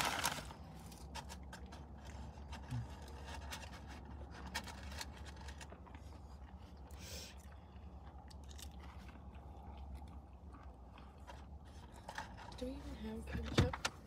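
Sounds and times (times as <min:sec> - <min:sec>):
chewing french fries: 0:00.0 - 0:12.6
steady low hum: 0:00.0 - 0:14.0.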